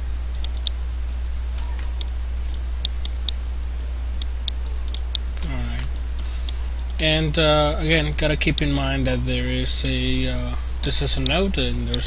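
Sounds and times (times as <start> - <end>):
steady low hum: 0.0 - 12.0
mouse buttons clicking: 1.6 - 3.4.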